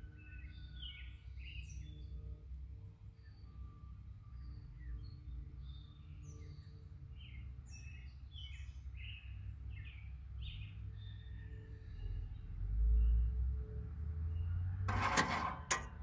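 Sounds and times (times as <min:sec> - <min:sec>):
small birds chirping: 0:00.3 - 0:02.2, 0:04.3 - 0:13.3.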